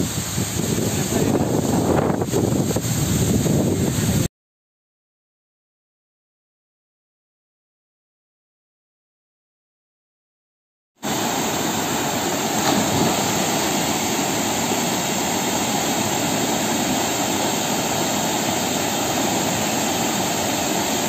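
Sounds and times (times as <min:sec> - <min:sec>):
small waterfall rushing: 0:11.0 - 0:21.0.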